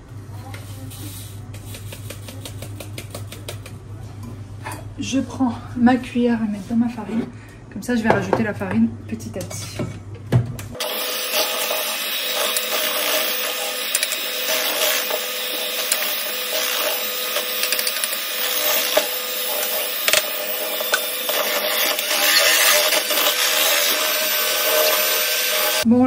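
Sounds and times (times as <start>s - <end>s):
electric hand mixer whining: 10.8s - 25.9s.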